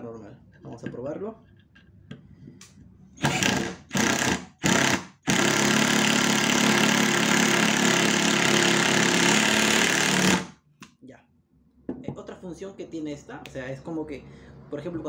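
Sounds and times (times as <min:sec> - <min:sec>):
impact driver driving screw: 0:03.2 - 0:10.5.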